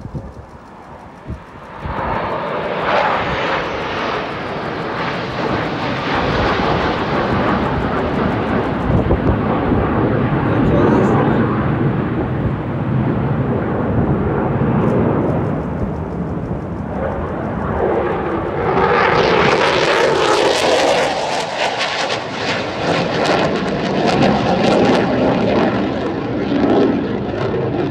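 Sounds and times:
fighter jet roar: 0.0s - 27.9s.

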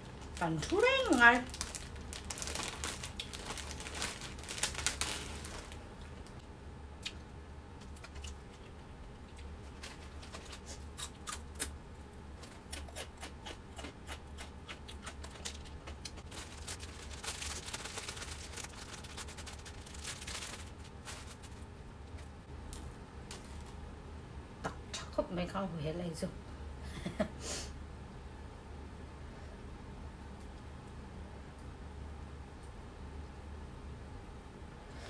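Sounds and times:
plastic packaging crinkling: 0.0s - 6.4s, 9.6s - 10.7s, 15.1s - 22.3s
steady low hum: 0.0s - 35.0s.

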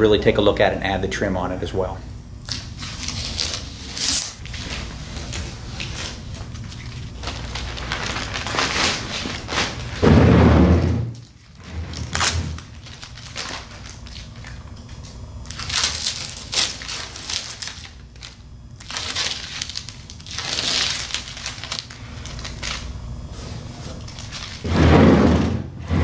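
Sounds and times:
tape being peeled off: 2.4s - 9.9s.

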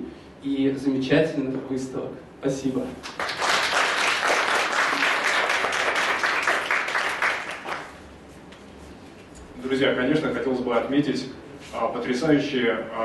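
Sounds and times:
audience applauding: 3.0s - 8.0s.

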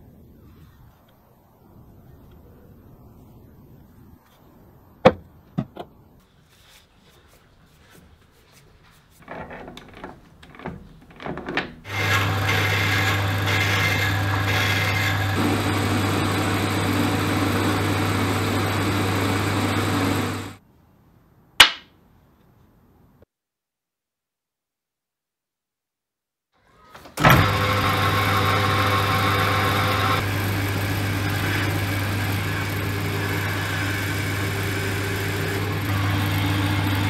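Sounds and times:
metal lathe cutting: 11.9s - 20.6s, 27.2s - 37.0s.

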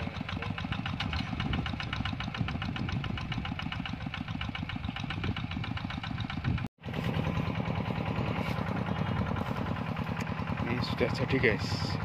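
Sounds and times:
diesel tractor engine running: 0.0s - 12.0s.

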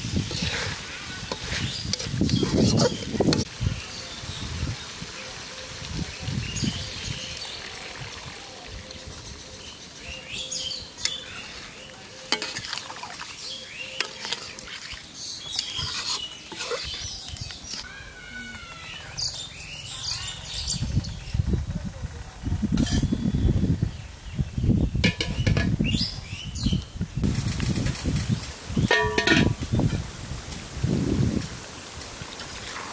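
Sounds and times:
food sizzling: 0.0s - 8.4s, 10.9s - 17.9s
spoon scraping a pan: 0.2s - 3.5s, 12.3s - 12.8s, 13.9s - 17.8s, 22.8s - 23.1s, 28.9s - 30.0s.

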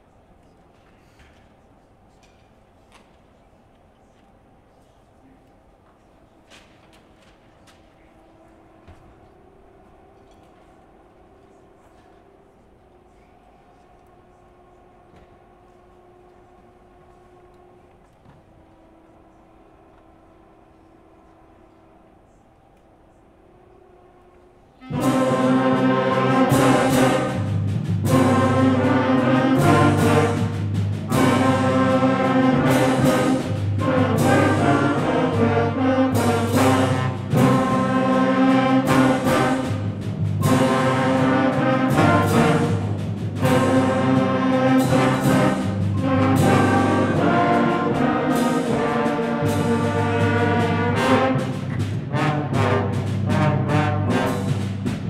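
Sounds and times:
concert band playing: 24.8s - 55.0s
timpani and percussion hits: 24.8s - 55.0s.

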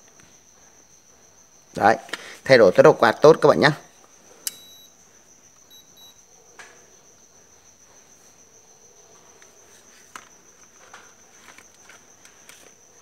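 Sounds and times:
control board buzzer beeps: 4.5s - 5.0s, 5.7s - 6.2s.

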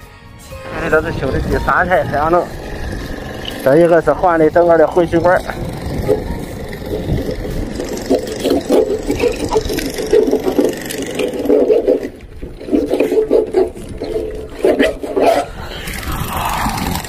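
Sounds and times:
water gushing and gurgling: 5.4s - 17.0s
hacksaw blade scraping: 7.8s - 15.5s.

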